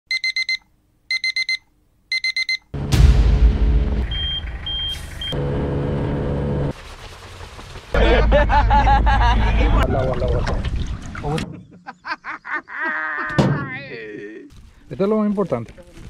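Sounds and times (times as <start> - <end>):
short high beeps: 0.1 - 2.6
alarm clock beeping: 0.1 - 2.7
loud rumbling noise: 2.8 - 10.1.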